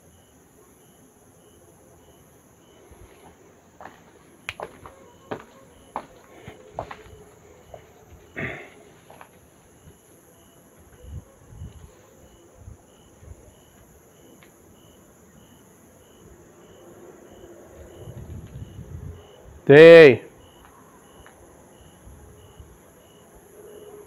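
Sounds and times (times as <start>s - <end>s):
knocks and steps: 3.2s - 8.3s.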